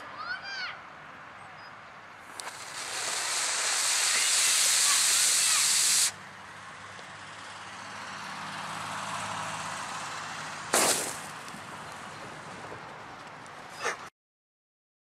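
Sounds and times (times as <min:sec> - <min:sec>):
fuse hissing: 0:02.3 - 0:06.2
explosive bang: 0:10.7 - 0:11.3.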